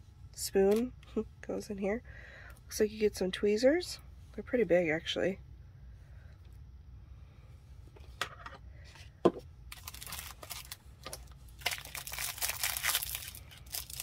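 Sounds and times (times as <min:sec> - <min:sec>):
plastic wrapping crinkling: 0:09.7 - 0:14.0.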